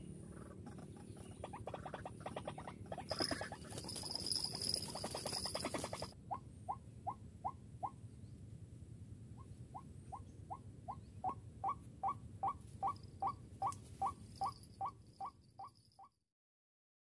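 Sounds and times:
waterhen calling: 0.6s - 6.8s, 9.7s - 15.3s.

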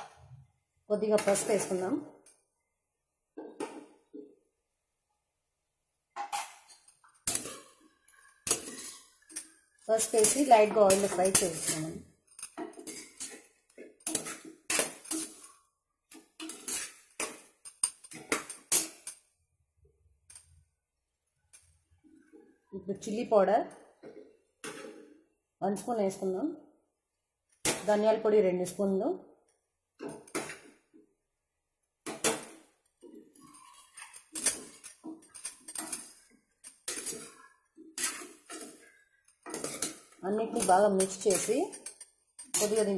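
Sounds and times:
metal spoon scraping metal pot: 6.2s - 15.6s, 16.3s - 19.2s, 33.0s - 42.9s.

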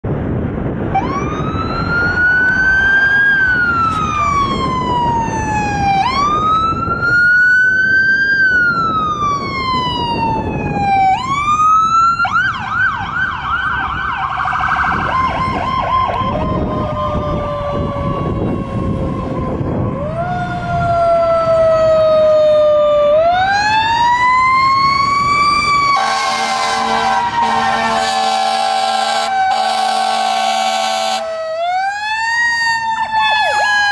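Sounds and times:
engine rumble: 0.0s - 29.5s
electronic siren wailing: 0.9s - 33.9s
fire truck air horns: 25.8s - 31.4s.

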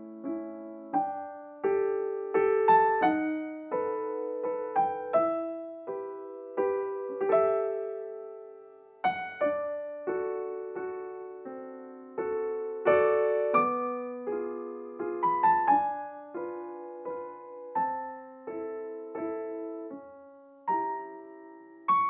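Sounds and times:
gentle piano music: 0.0s - 22.0s.

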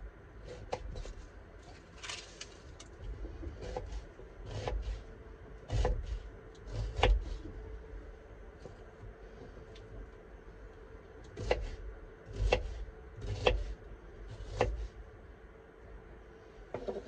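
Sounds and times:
knife cutting onion on board: 3.6s - 5.0s, 5.7s - 7.4s, 11.4s - 14.9s.

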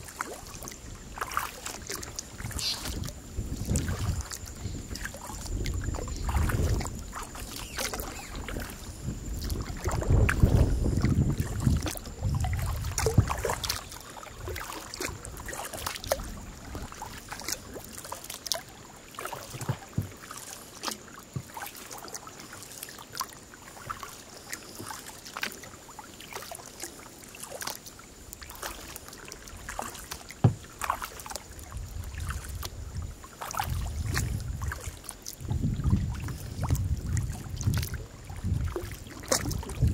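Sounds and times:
wind rumbling on microphone: 0.0s - 17.8s, 30.5s - 39.9s
paddle splashes and drips: 0.0s - 39.9s.

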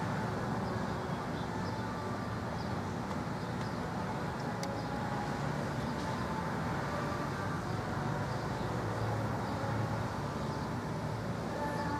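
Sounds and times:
distant road traffic: 0.0s - 11.9s.

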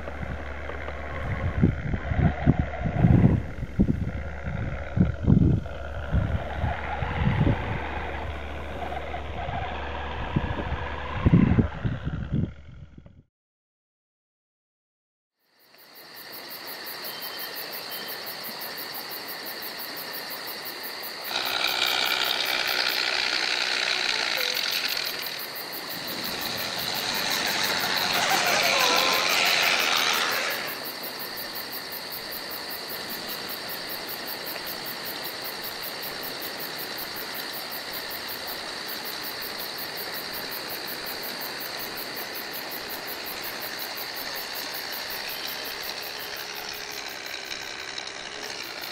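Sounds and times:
simulated engine through small speaker: 0.0s - 13.2s, 21.3s - 30.9s, 44.6s - 48.9s
steady high whine: 21.2s - 33.5s.

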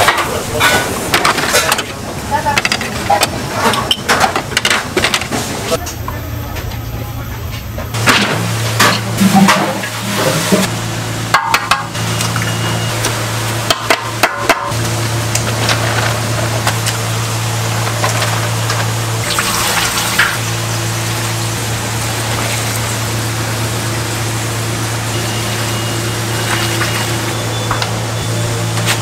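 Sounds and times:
low machine hum: 0.0s - 29.0s
liquid pouring and splashing: 19.2s - 25.7s.

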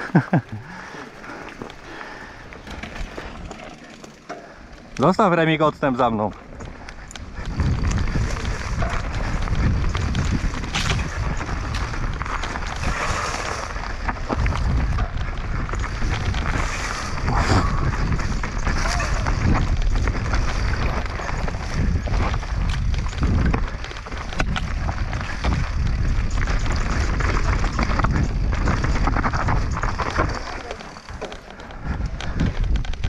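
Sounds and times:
bike tyres on dirt: 0.0s - 33.0s
bike knocking and rattling: 0.1s - 33.0s
wind rushing over microphone: 6.8s - 33.0s.

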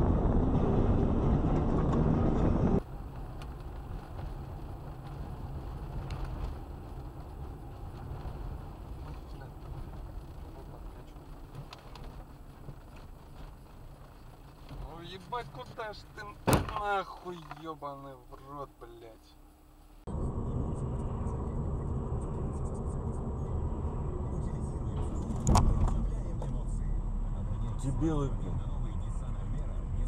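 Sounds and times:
car driving over snow: 0.0s - 18.7s
car engine and tyres rumble: 0.0s - 30.0s.

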